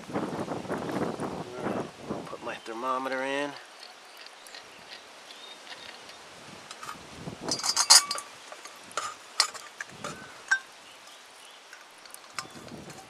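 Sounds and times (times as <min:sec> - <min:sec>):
metallic clinks and taps: 0:03.5 - 0:10.7, 0:11.7 - 0:13.0.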